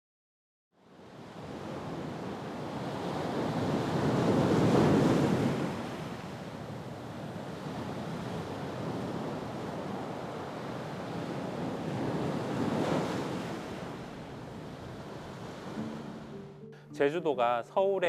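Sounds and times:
wind: 0.7s - 17.6s
sea surf breaking on rocks: 1.4s - 6.4s, 7.5s - 16.2s.

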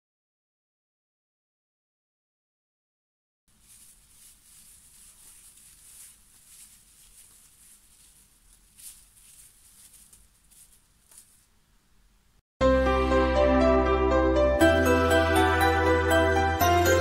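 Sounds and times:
soft brush sweeping: 3.5s - 11.7s.

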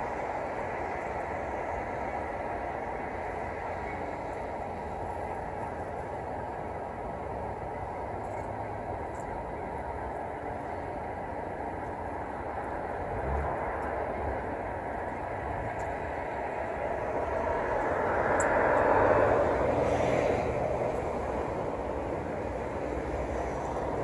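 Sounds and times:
road traffic rumble: 0.0s - 24.0s
vehicle passing: 16.4s - 24.0s.

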